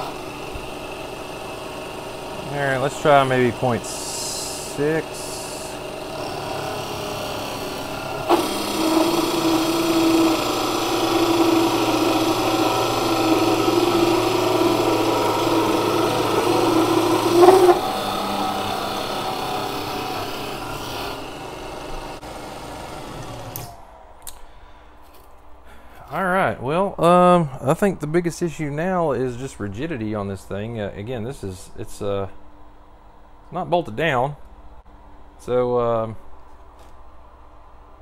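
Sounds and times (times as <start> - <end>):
lathe tool cutting metal ringing: 0.0 - 22.2
lathe motor running: 0.0 - 23.8.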